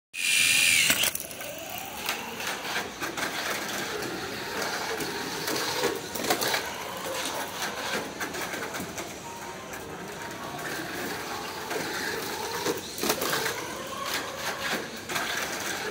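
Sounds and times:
small electric motor whining: 0:00.2 - 0:02.8
toy car rollers clattering on track: 0:00.2 - 0:09.2, 0:10.0 - 0:15.9.

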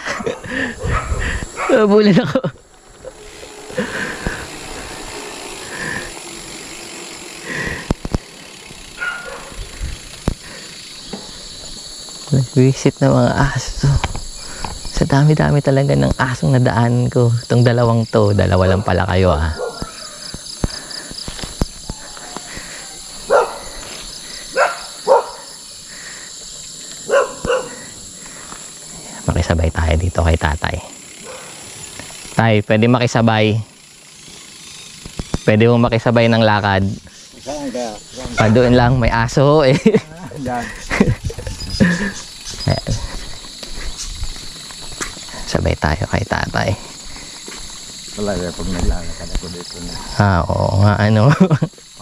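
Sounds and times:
dogs barking: 0:00.0 - 0:01.9, 0:08.9 - 0:09.6, 0:19.5 - 0:20.2, 0:23.2 - 0:25.6, 0:27.0 - 0:28.0, 0:31.2 - 0:31.7, 0:38.3 - 0:38.7
insects chirring: 0:00.0 - 0:52.0.

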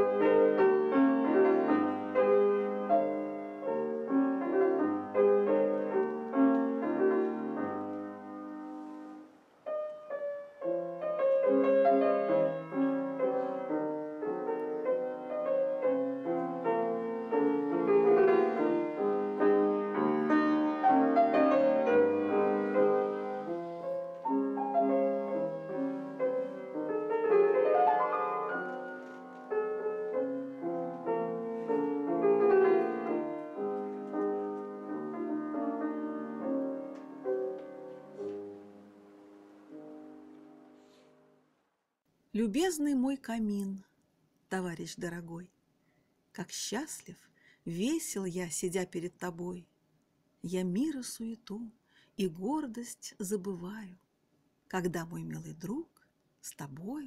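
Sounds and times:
grand piano playing: 0:00.0 - 0:41.4.

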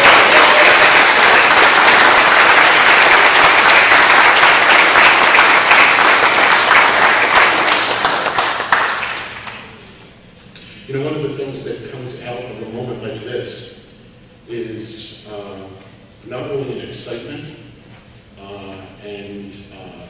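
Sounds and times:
congregation applauding: 0:00.0 - 0:09.8.

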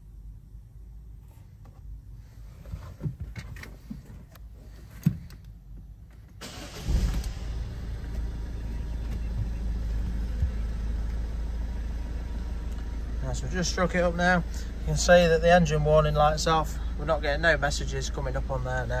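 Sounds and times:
diesel engine cranking and idling: 0:05.9 - 0:19.0.

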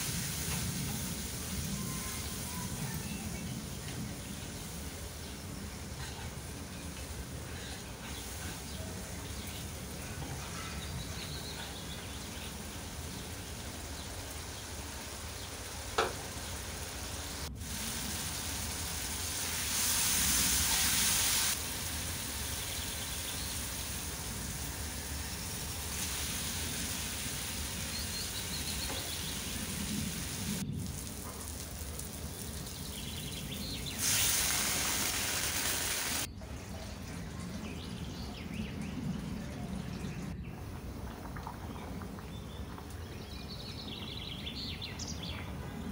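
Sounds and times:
spices sizzling in oil: 0:00.0 - 0:36.3.

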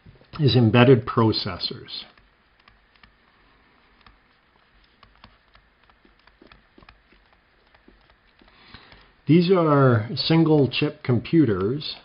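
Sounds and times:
stylus tapping on tablet screen: 0:02.1 - 0:09.2.

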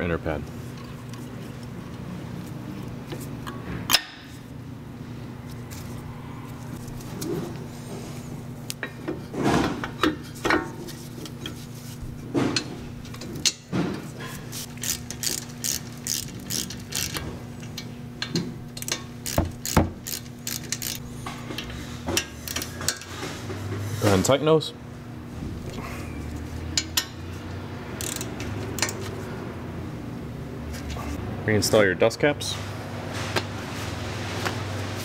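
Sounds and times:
hand ratchet clicking: 0:14.6 - 0:17.2, 0:18.8 - 0:21.0, 0:28.0 - 0:29.0.

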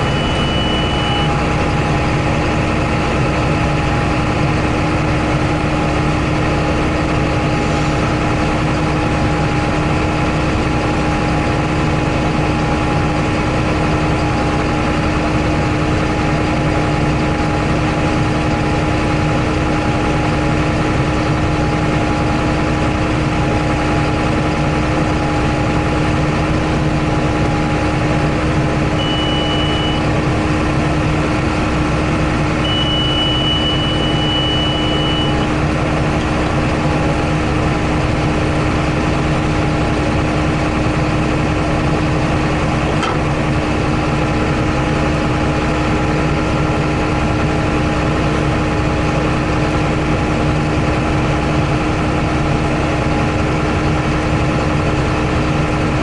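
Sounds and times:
short high tone: 0:00.0 - 0:01.4, 0:29.0 - 0:30.1, 0:32.6 - 0:35.5
diesel tractor engine droning: 0:00.0 - 0:56.0.

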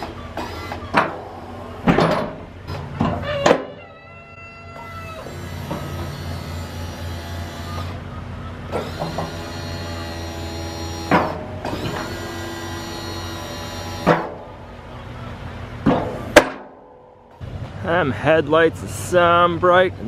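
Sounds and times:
hydraulic pump running: 0:00.0 - 0:03.2, 0:05.2 - 0:08.0, 0:08.7 - 0:14.7.

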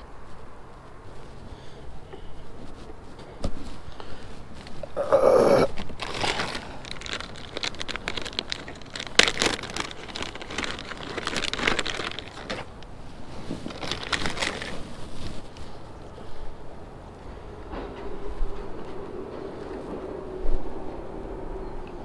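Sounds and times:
fishing tackle rustling and clicking: 0:05.7 - 0:15.7.

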